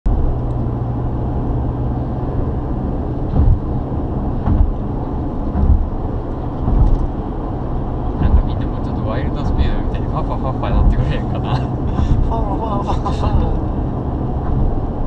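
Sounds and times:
car road noise inside cabin: 0:00.1 - 0:15.0
low thumps: 0:03.1 - 0:12.3.

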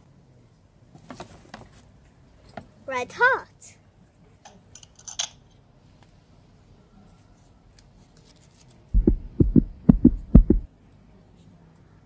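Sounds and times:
heartbeat thumps: 0:09.0 - 0:10.7.

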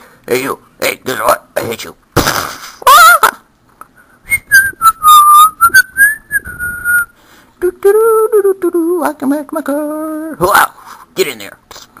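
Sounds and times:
person whistling wavering tone: 0:04.3 - 0:07.2.

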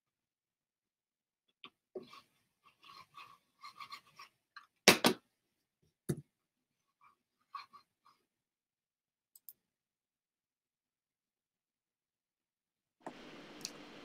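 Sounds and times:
small clicks and scraping: 0:01.6 - 0:04.8.

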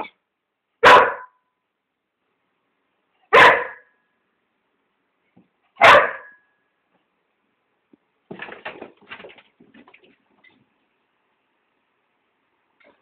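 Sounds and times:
dog barking: 0:00.8 - 0:01.4, 0:03.3 - 0:03.9, 0:05.8 - 0:06.4.

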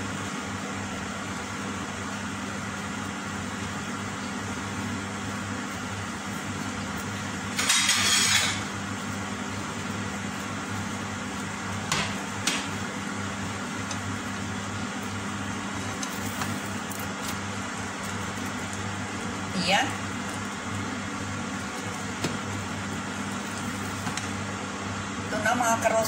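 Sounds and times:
pancake cooking in frying pan: 0:00.3 - 0:24.8.

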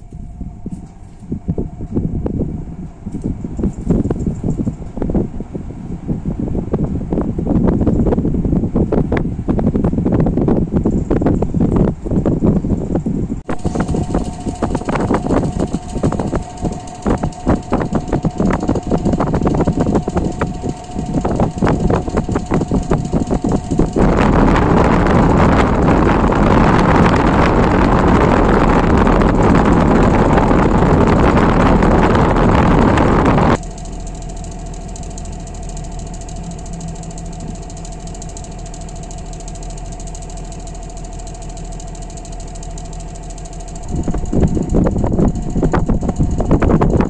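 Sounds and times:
fan motor hum: 0:00.0 - 0:47.0
loud rush of air: 0:11.9 - 0:33.7
faint thin whine: 0:13.5 - 0:47.0.

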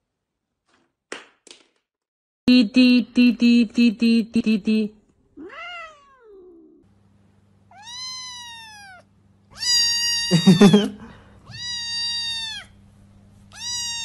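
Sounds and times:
quick repeated tones: 0:02.5 - 0:04.9
kitten meowing: 0:05.4 - 0:06.7, 0:07.7 - 0:10.9, 0:11.5 - 0:12.8, 0:13.5 - 0:14.0.

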